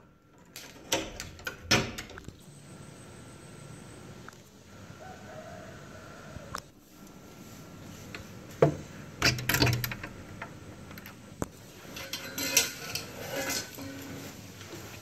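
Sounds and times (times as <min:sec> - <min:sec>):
door lock metallic clicks and rattles: 0:00.4 - 0:02.3, 0:09.2 - 0:11.2
distant rooster crowing: 0:04.7 - 0:06.8.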